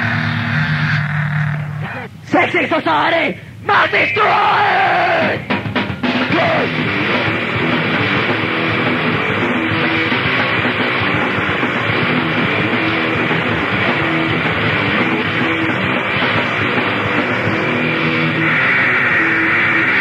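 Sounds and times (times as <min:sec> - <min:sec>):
distorted guitar riffing: 0:00.0 - 0:20.0
drums: 0:00.0 - 0:20.0.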